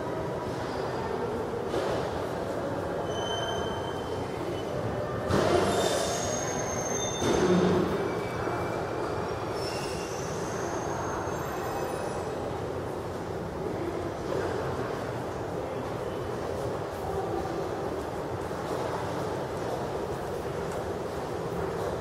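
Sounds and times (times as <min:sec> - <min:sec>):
train wheels squealing on rails: 0:00.4 - 0:01.3, 0:02.8 - 0:12.6.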